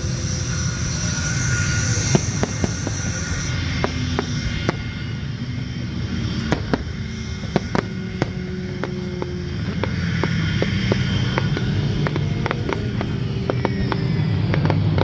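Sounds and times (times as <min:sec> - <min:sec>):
steady low rumble: 0:00.0 - 0:15.0
fireworks bursting bangs: 0:02.1 - 0:05.0, 0:06.4 - 0:15.0.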